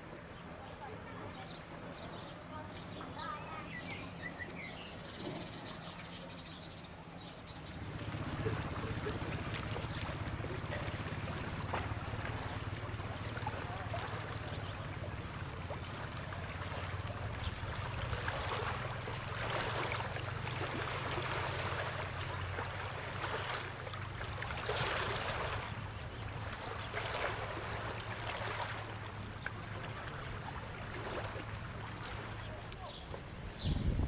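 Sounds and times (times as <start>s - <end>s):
small waves lapping: 0.0s - 34.0s.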